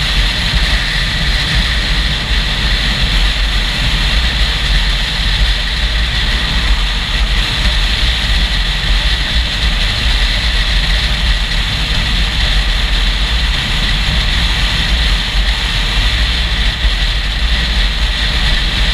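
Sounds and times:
motorcycle engine: 0.0 - 18.9
wind rushing over microphone: 0.0 - 18.9.

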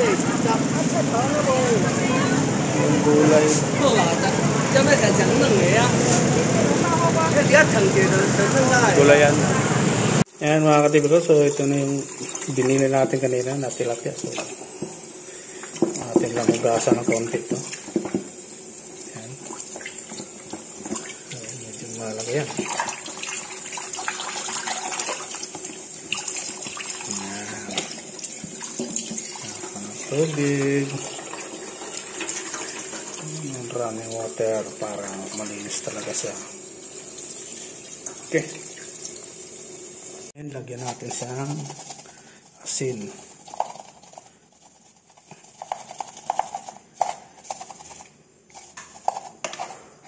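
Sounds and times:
tap water running into sink: 10.4 - 43.7
hollow taps and knocks on fish: 15.8 - 18.3.

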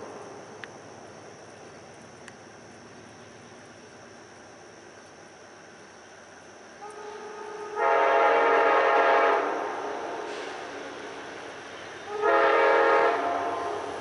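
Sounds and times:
train air horn blasts: 6.8 - 10.8, 12.0 - 14.0.

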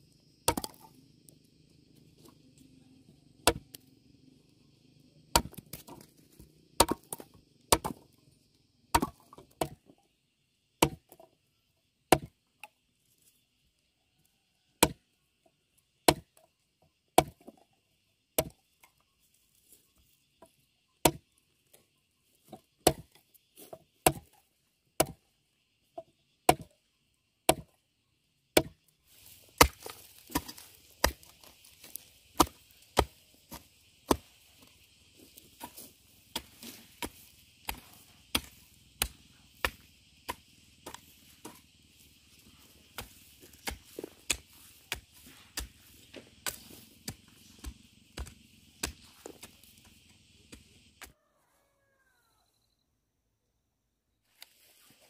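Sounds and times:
chopping blows into wood: 35.6 - 41.6, 42.9 - 49.7.

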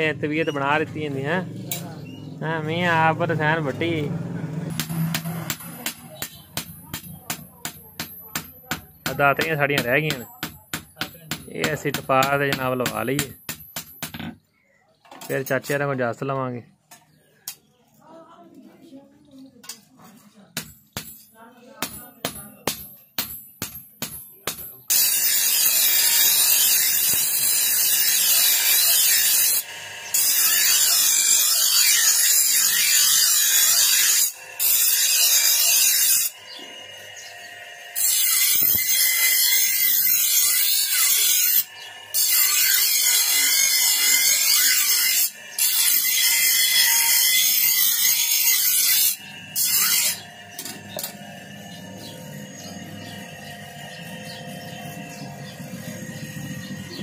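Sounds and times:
bench grinder grinding steel: 0.3 - 8.4, 24.8 - 57.0
hammer striking blade on anvil: 4.7 - 14.3, 20.6 - 26.2
grinder motor humming: 24.9 - 57.0.

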